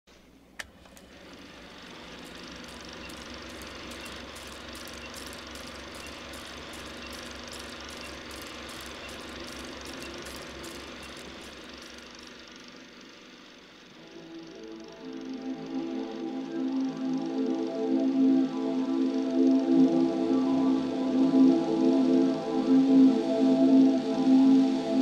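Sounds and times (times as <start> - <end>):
film projector whirring: 0.1 - 25.0
film crackle and pops: 1.9 - 12.4.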